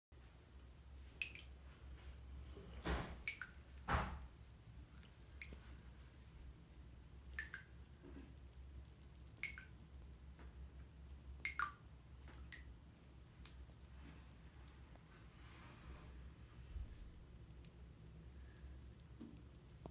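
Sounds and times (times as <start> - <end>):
water drips plinking: 1.2 - 1.6, 3.2 - 6.0, 6.6 - 12.8.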